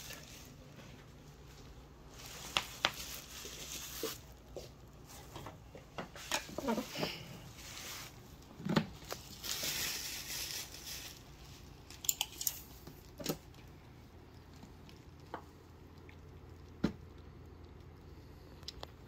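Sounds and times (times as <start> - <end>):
bubble wrap crinkling: 0.0 - 5.4, 6.2 - 13.7.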